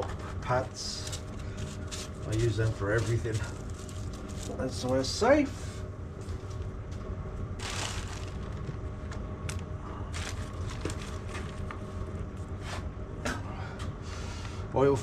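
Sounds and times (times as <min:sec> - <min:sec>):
low hum: 0:00.0 - 0:15.0
plastic bags crinkling: 0:01.0 - 0:05.1, 0:07.6 - 0:08.9, 0:09.5 - 0:11.8.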